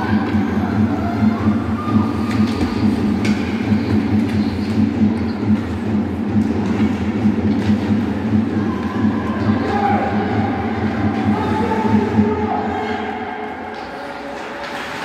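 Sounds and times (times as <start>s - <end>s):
loud low rumble with pulsing beat: 0.0s - 13.1s
hockey sticks clacking on puck: 2.3s - 5.3s.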